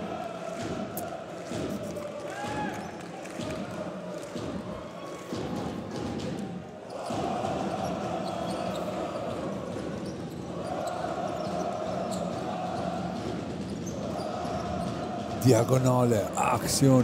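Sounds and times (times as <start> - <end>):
sports hall background noise: 0.0 - 17.0.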